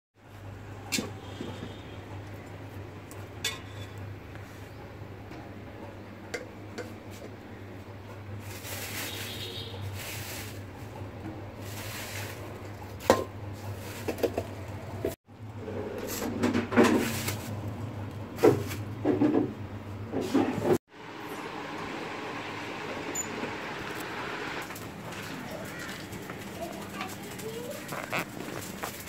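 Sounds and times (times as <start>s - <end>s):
plastic bags rustling: 8.4s - 14.8s, 24.6s - 29.0s.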